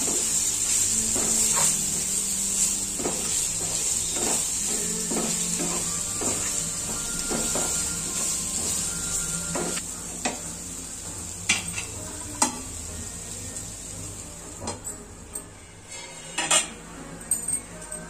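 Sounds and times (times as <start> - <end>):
oil sizzling: 0.0 - 14.6
wooden spatula scraping a frying pan: 15.9 - 16.7.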